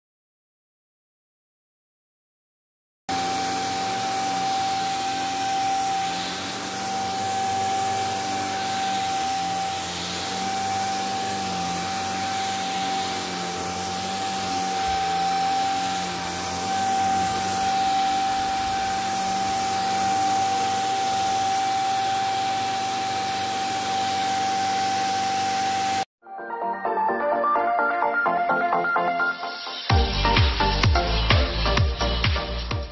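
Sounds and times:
handheld vacuum motor whining: 0:03.1 - 0:26.1.

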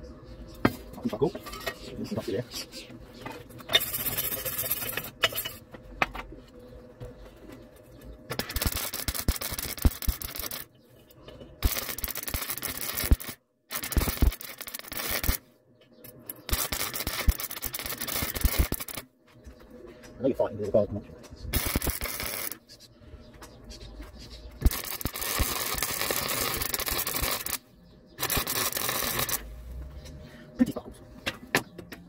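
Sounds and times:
welding arc crackling and hissing: 0:08.4 - 0:10.7, 0:11.6 - 0:15.4, 0:16.5 - 0:19.0, 0:21.5 - 0:22.6, 0:24.6 - 0:27.6, 0:28.2 - 0:29.5.

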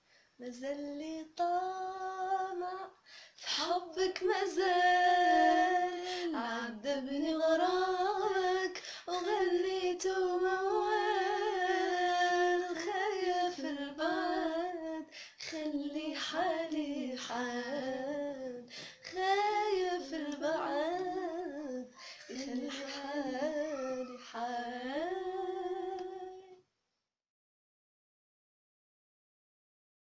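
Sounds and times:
woman humming a melody: 0:20.3 - 0:26.6.

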